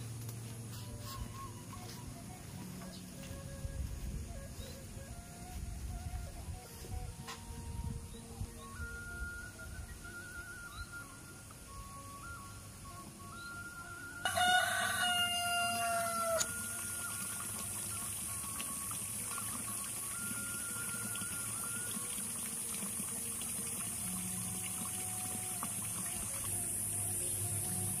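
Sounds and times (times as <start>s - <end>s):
steady background hiss: 0.0s - 14.3s, 15.0s - 28.0s
rooster crowing: 14.2s - 16.6s.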